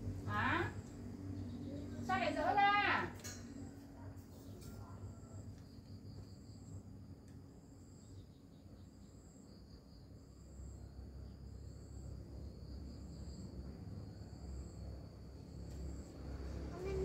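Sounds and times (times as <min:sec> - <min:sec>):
insect trill pulsing: 0:00.0 - 0:17.0
steady high insect buzz: 0:00.0 - 0:17.0.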